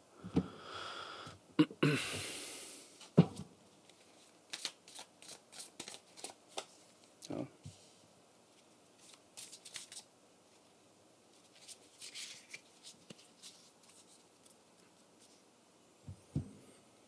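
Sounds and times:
cards rustling and clicking: 0:03.8 - 0:07.3, 0:09.0 - 0:10.1, 0:11.4 - 0:14.6.

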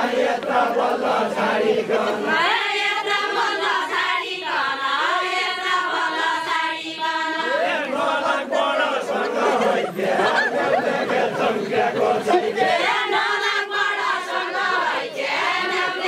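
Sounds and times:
crowd voices: 0:00.0 - 0:16.0
women singing folk song: 0:00.0 - 0:16.0.

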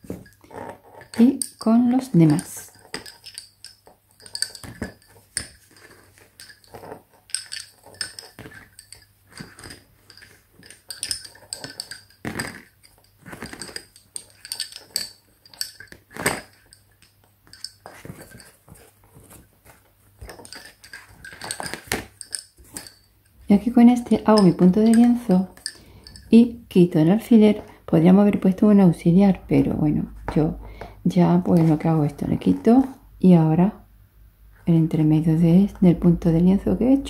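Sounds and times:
lace bobbins clicking: 0:00.0 - 0:27.7.

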